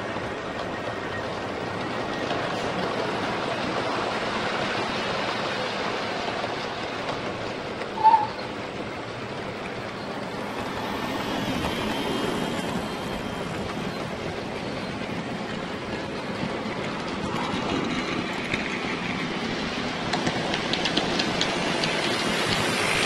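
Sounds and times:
model train whirring: 9.4s - 23.0s.

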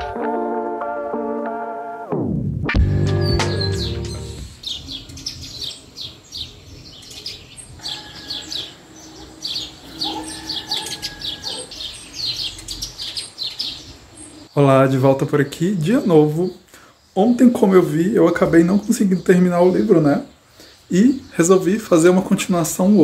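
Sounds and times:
background music: 0.0s - 4.6s
small birds chirping: 3.1s - 23.0s.

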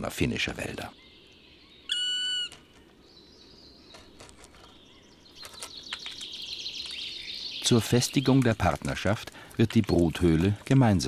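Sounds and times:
woodpecker call: 1.0s - 3.0s
woodpecker tapping: 3.8s - 11.0s.

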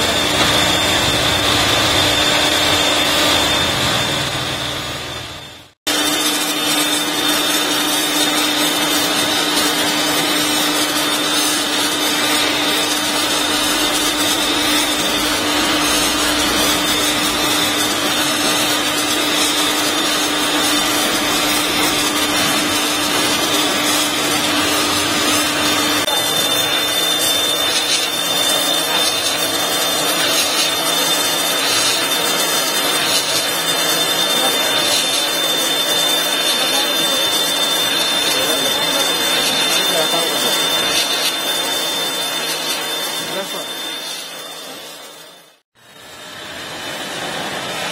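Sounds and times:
pressure washer spray hissing: 7.9s - 37.4s.

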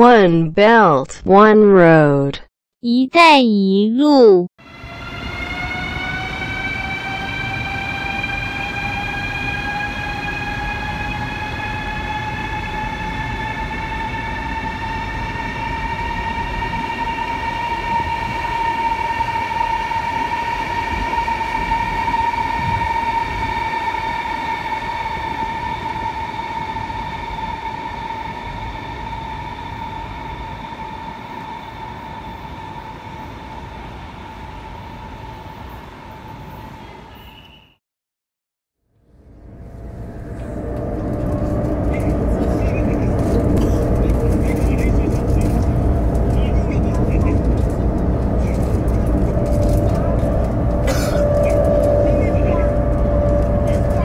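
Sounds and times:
electric train whine: 4.6s - 37.6s, 38.9s - 54.0s
train running gear rumble: 39.2s - 54.0s.

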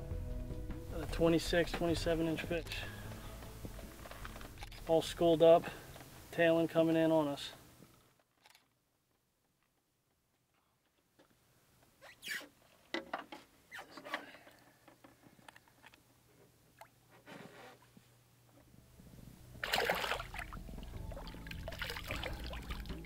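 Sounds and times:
background music: 0.0s - 5.9s, 19.0s - 23.0s
fish splashing: 19.5s - 23.0s
water splashing against boat: 19.6s - 23.0s.

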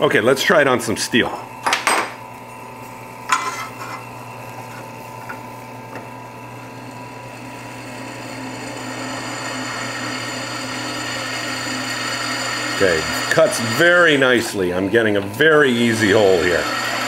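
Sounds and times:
drill press motor running: 4.0s - 17.0s
drill bit cutting steel: 7.2s - 14.5s, 15.5s - 17.0s.

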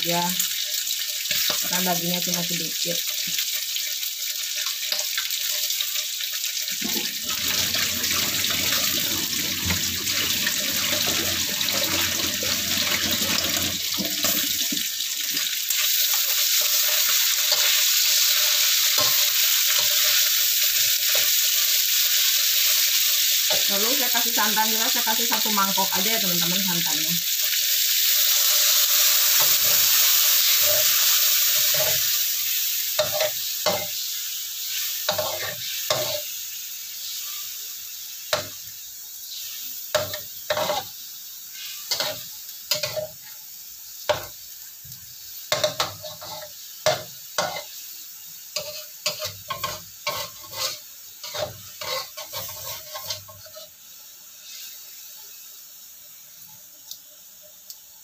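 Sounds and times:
liquid sizzling in a hot wok: 0.0s - 58.0s
spatula scraping a wok: 15.8s - 21.5s, 29.4s - 32.3s, 33.0s - 36.3s, 39.3s - 43.3s, 45.5s - 47.8s, 48.6s - 53.8s.

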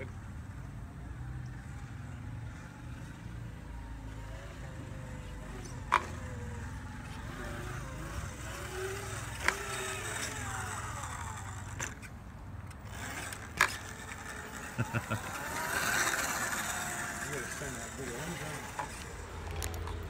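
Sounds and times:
electric motor whining: 1.2s - 20.0s.

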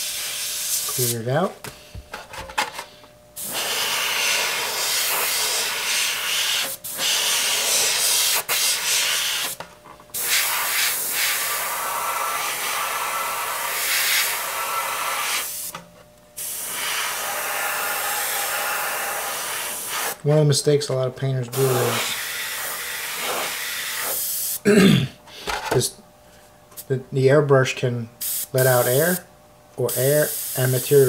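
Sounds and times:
airbrush hissing: 0.0s - 1.1s, 3.4s - 9.6s, 10.2s - 15.7s, 16.4s - 20.2s, 21.5s - 24.6s, 28.2s - 29.2s, 29.9s - 31.0s.

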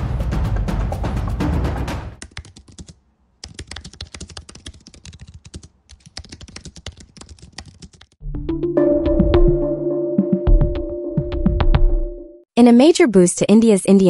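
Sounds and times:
typing on a computer keyboard: 2.2s - 8.2s.

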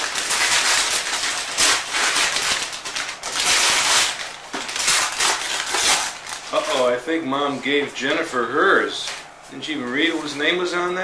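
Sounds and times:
wrapping paper tearing and crumpling: 0.0s - 7.9s.

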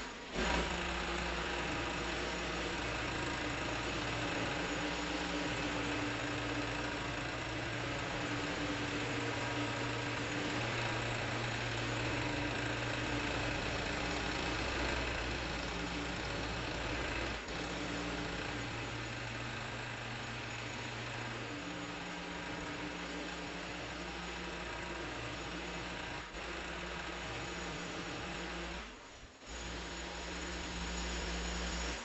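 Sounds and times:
engine idling: 0.0s - 28.5s.

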